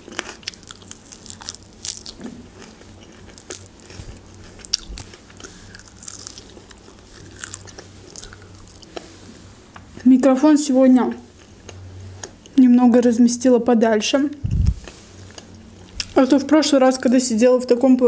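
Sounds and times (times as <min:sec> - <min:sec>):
person chewing chicken: 0:00.0 - 0:09.2.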